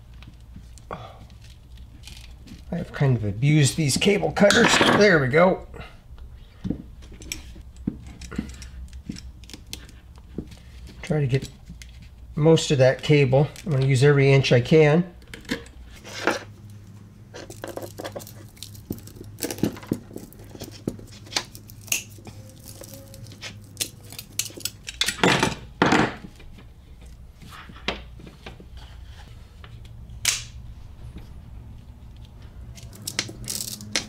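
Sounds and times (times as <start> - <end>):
cable cutters crunching through cable: 17.4 - 25.6, 32.7 - 34.0.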